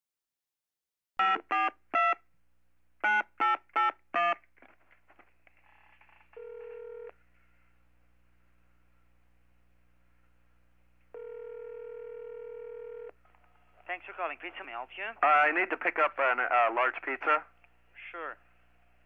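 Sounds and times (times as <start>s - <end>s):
telephone ring tone: 6.3s - 7.2s, 11.1s - 13.1s.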